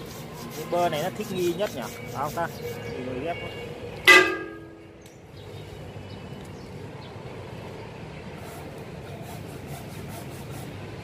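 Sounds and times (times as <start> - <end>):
hand saw rasping through wood: 0.0 - 3.2, 8.4 - 11.0.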